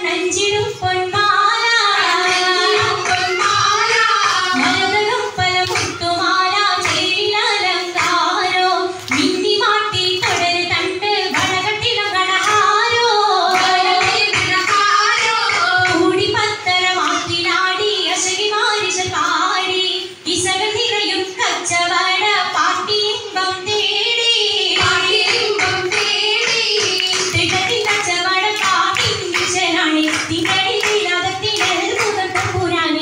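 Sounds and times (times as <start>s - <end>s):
high voices singing: 1.2s - 18.1s
sharp beats: 2.0s - 17.9s
musical accompaniment: 3.0s - 6.9s.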